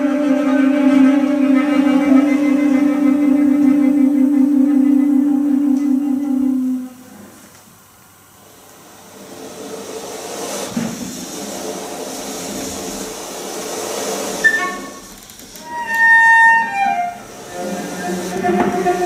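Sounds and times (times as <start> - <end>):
bowed cello texture: 0.0 - 7.1, 15.6 - 19.0
high held tones gliding down: 0.0 - 7.1.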